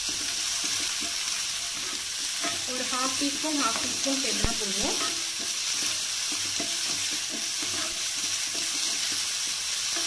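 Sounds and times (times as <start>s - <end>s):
wooden spatula scraping pan: 0.0s - 9.3s
vegetables sizzling in oil: 0.0s - 10.0s.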